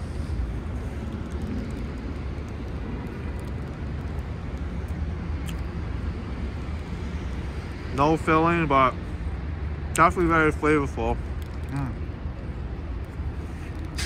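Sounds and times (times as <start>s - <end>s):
city street traffic rumble: 0.0s - 14.0s.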